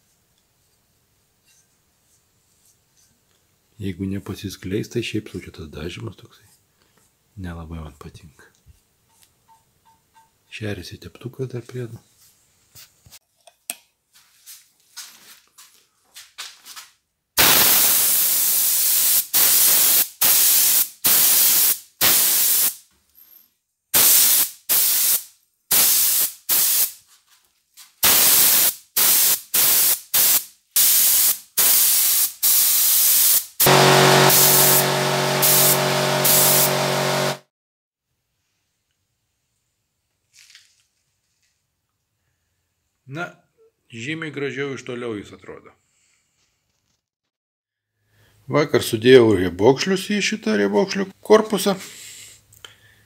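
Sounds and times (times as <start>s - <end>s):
paint spray gun hissing: 17.4s - 22.8s, 24.0s - 27.0s, 28.0s - 37.4s
low hum: 33.7s - 37.4s.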